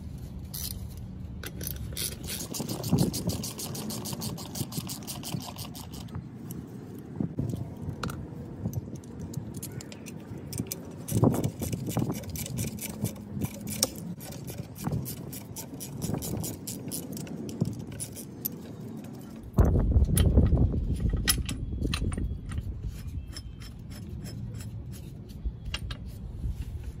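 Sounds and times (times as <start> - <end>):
metal clinks and scrapes: 20.9 - 27.0.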